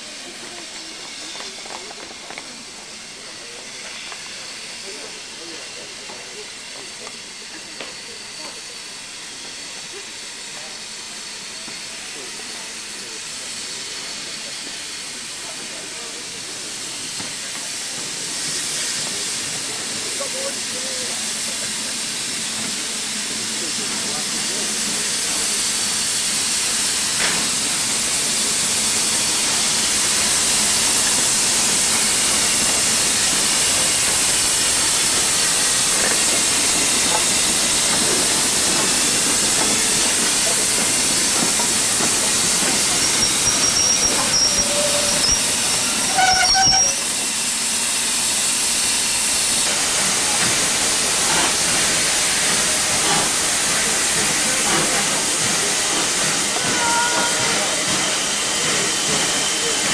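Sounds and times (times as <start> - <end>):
steam hissing: 0.0 - 59.9
short high whistle tones: 43.0 - 47.1.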